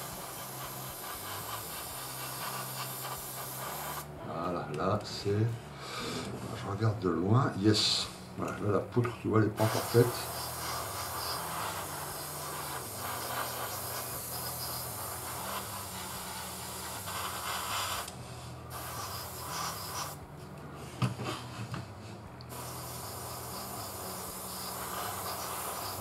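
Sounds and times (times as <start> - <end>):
airbrush hissing: 0.0 - 4.2, 9.5 - 21.6, 22.4 - 26.0.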